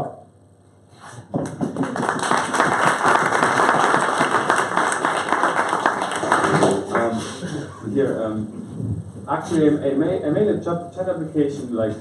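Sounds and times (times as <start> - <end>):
audience applauding: 1.4 - 7.4.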